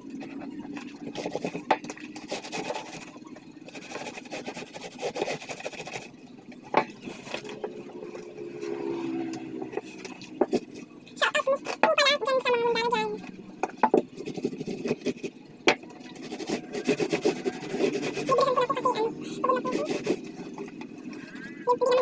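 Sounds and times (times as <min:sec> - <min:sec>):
wet fabric scrubbing: 0:16.1 - 0:22.0.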